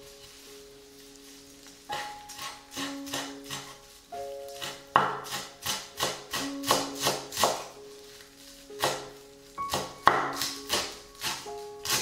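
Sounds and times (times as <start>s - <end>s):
light acoustic music: 0.0s - 12.0s
knife chopping on wooden board: 4.6s - 7.7s, 8.8s - 9.1s, 9.7s - 12.0s.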